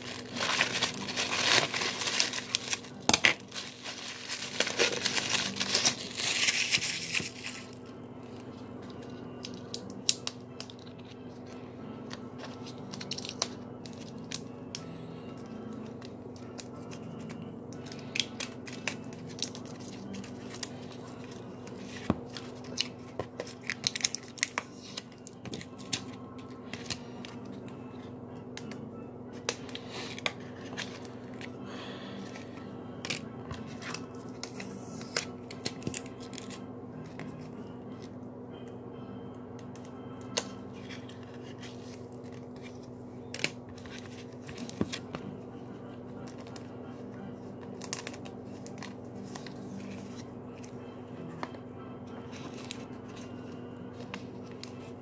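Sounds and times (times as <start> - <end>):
plastic sleeves and cards clicking: 0.0 - 7.8, 8.8 - 27.8, 47.6 - 51.6.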